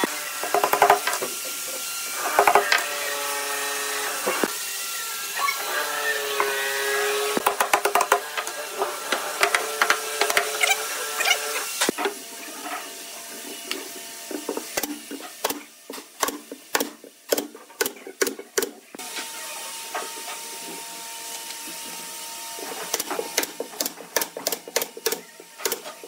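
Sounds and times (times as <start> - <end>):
pneumatic nail gun firing: 14.8 - 19.3, 22.7 - 26.0.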